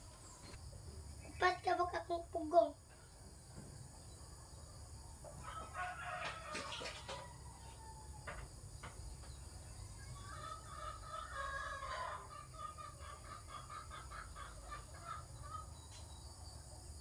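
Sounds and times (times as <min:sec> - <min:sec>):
rooster crowing: 0:05.4 - 0:08.4, 0:09.8 - 0:12.6
chickens clucking: 0:08.4 - 0:16.3.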